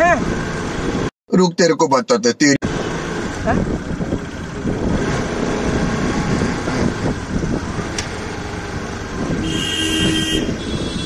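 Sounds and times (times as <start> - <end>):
road and wind noise: 0.0 - 11.0
vehicle horn: 9.4 - 11.0.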